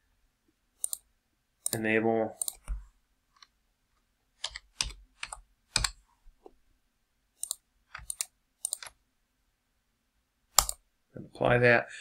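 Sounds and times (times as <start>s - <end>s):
keyboard keystrokes: 4.4s - 6.0s, 7.4s - 8.9s, 10.6s - 10.8s.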